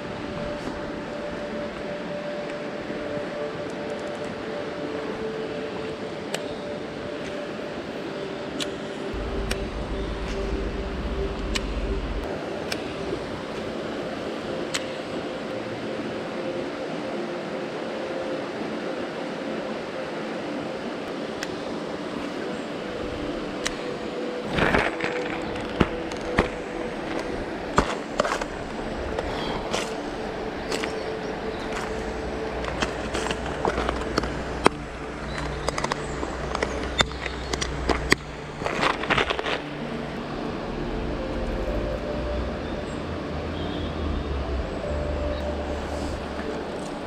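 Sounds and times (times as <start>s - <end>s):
river running over stones: 0.0s - 47.0s
gear clicking on pebbles: 24.5s - 40.0s.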